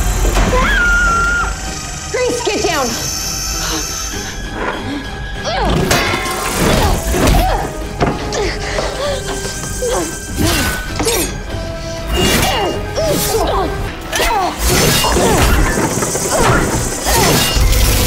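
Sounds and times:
dramatic score music: 0.0 - 18.0
glass breaking: 5.8 - 7.4.

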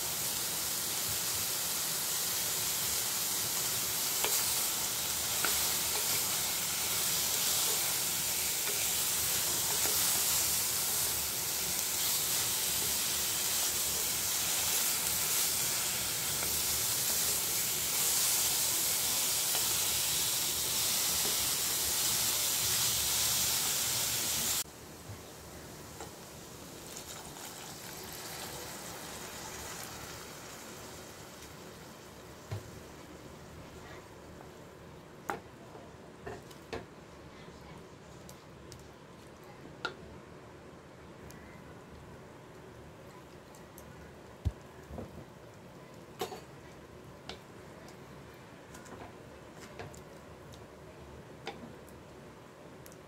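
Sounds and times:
vegetables sizzling in a pot: 0.0 - 34.6, 46.1 - 50.7.

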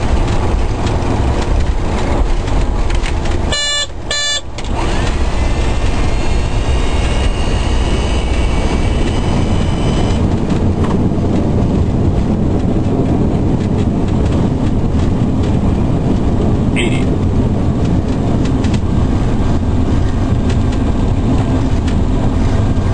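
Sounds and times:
jet engine whine: 0.0 - 14.1
airliner cockpit rumble: 0.0 - 22.9
short beeps: 3.5 - 4.4, 6.5 - 10.2, 16.8 - 17.1.

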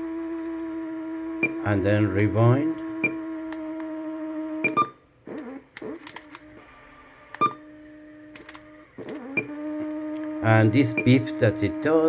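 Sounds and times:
cassette player beeping: 1.4 - 1.6, 4.6 - 5.0, 7.4 - 7.6, 10.8 - 11.4.

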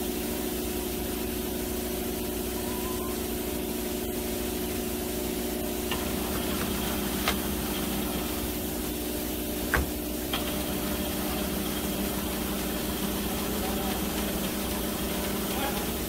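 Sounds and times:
stitching machine motor hum: 5.6 - 16.0.

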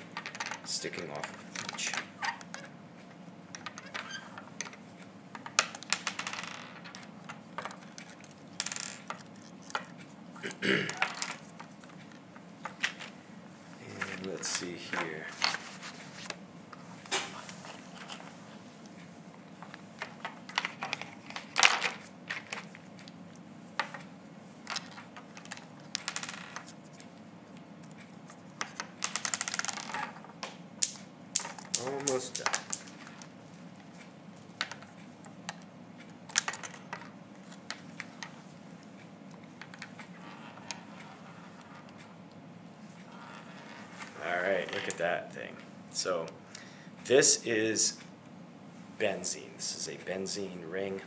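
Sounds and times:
plastic pieces clicking and rattling: 28.6 - 30.2, 30.8 - 33.3, 36.3 - 37.8.

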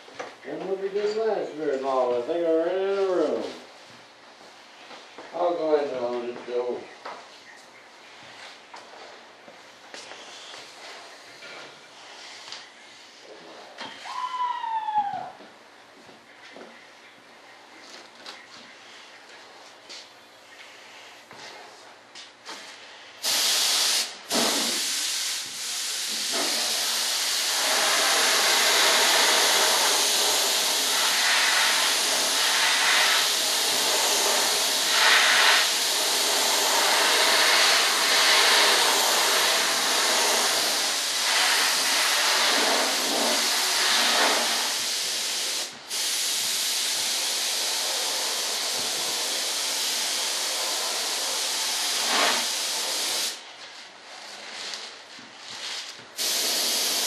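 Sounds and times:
paint sprayer hissing: 23.2 - 53.5, 56.1 - 57.0.

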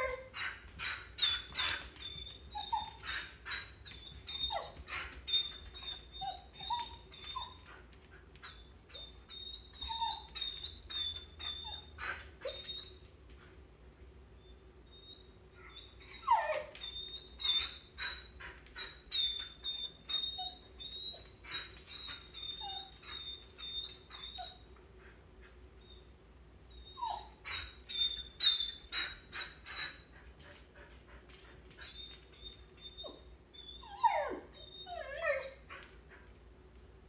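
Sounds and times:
dog yelps: 0.0 - 7.8, 8.4 - 13.0, 14.9 - 24.6, 26.8 - 30.0, 31.8 - 35.8
dog whining: 0.0 - 13.1, 14.4 - 24.8, 26.7 - 30.2, 31.8 - 35.9.

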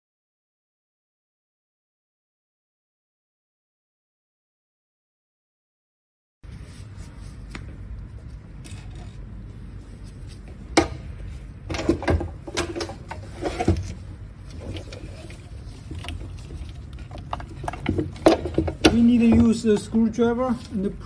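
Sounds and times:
steady low hum: 6.4 - 21.0
gloved hands handling cables: 6.5 - 21.0.

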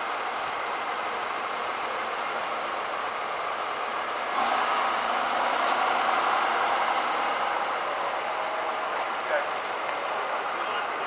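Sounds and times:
pickup truck driving past: 3.4 - 9.7.

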